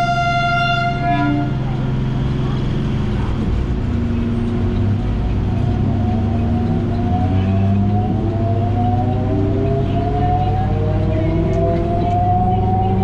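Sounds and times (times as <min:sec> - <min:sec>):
electric train motors humming: 0:00.0 - 0:13.0
rising motor whine: 0:05.7 - 0:13.0.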